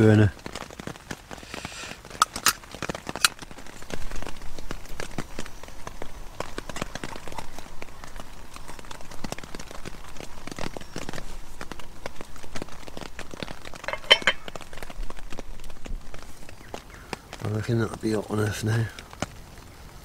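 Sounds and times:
rain drops on tent fabric: 0.0 - 20.0
metal clinks of stove handled: 13.9 - 14.4.

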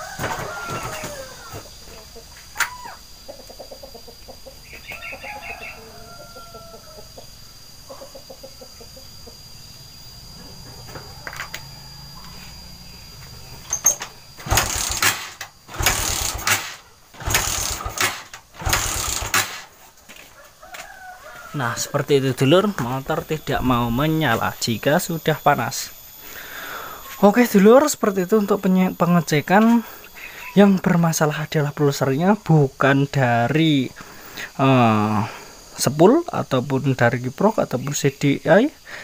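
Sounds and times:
chickens clucking: 0.0 - 13.6, 29.5 - 30.8
motorcycle engine kick-started: 12.7 - 19.7.

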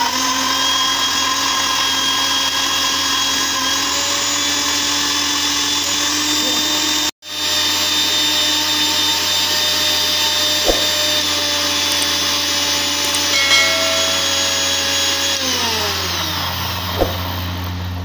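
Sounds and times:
mixer grinder motor whining: 0.0 - 7.8.

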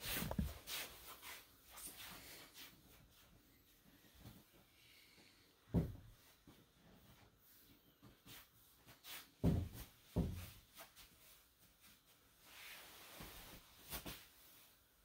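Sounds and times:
cloth swishing: 6.2 - 15.0.

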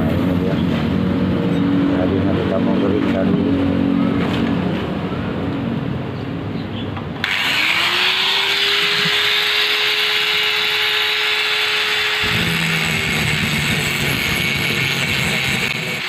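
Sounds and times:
angle grinder whine: 7.2 - 16.0.

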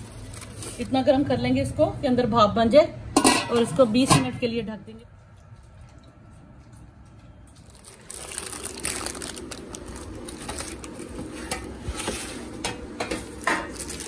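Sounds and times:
baking paper crinkling: 0.0 - 1.3, 7.6 - 12.6, 13.3 - 14.0.

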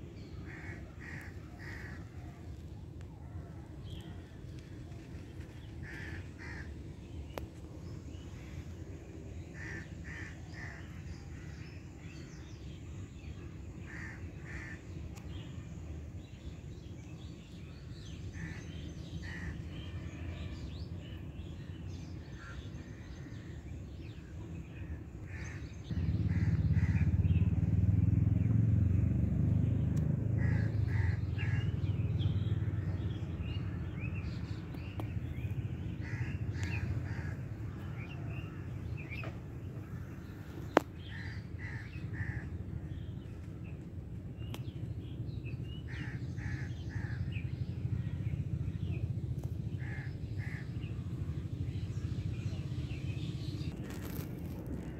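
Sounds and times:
low outdoor rumble: 0.0 - 54.9
crows cawing: 0.5 - 2.1, 5.8 - 6.8, 9.6 - 10.8, 13.9 - 14.8, 30.4 - 31.6, 36.0 - 37.9, 41.1 - 42.5.

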